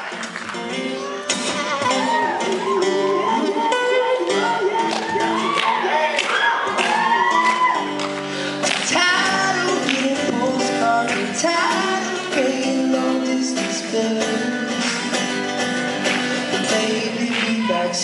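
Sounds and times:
acoustic guitar strumming: 0:00.0 - 0:18.0
man singing: 0:00.8 - 0:07.6, 0:08.3 - 0:15.5, 0:16.4 - 0:18.0.

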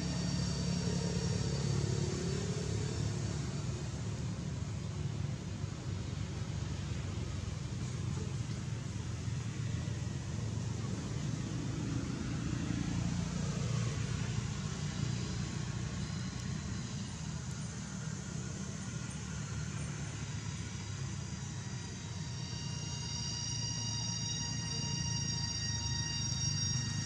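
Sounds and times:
low rumble with hiss: 0:00.0 - 0:27.0
high steady tones: 0:20.0 - 0:27.0.

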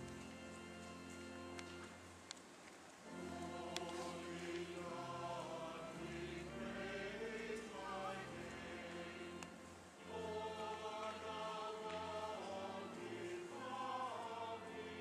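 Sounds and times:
faint ticks: 0:00.0 - 0:04.7, 0:09.4 - 0:09.6
choir singing sustained chords: 0:03.0 - 0:15.0.

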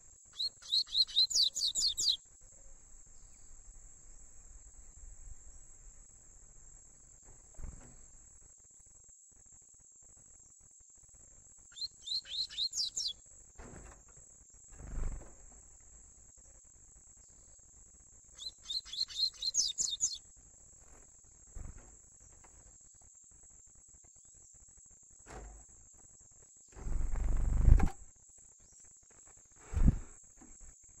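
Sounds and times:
high insect trill: 0:00.0 - 0:02.4, 0:08.0 - 0:15.4, 0:16.0 - 0:31.0
bird singing high repeated notes: 0:00.3 - 0:02.2, 0:11.7 - 0:13.2, 0:18.4 - 0:20.2
low thumps: 0:29.7 - 0:30.1.

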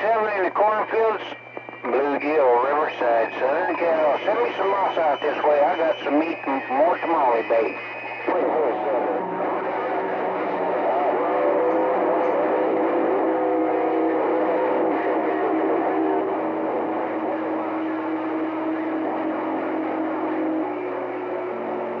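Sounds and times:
radio static hiss: 0:00.0 - 0:11.6.

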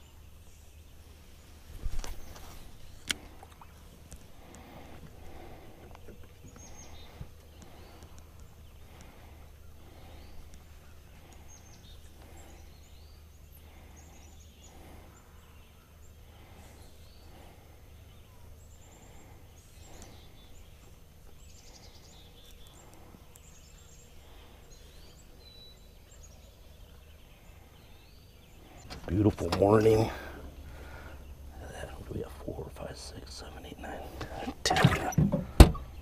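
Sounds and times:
birds chirping and trilling: 0:00.0 - 0:36.0
steady low hum: 0:00.0 - 0:36.0.

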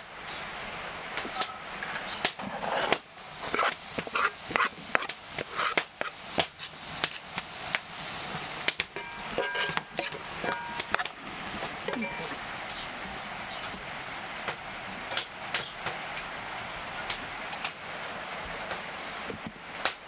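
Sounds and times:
onion sizzling in a frying pan: 0:00.0 - 0:20.0
carrots scraped off a wooden board: 0:02.4 - 0:07.2.

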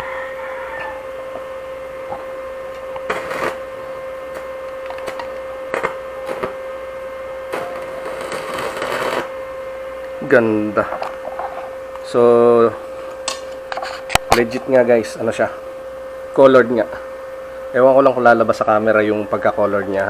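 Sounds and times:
electrical hum: 0:00.0 - 0:20.0
welding arc crackling: 0:00.9 - 0:15.6.

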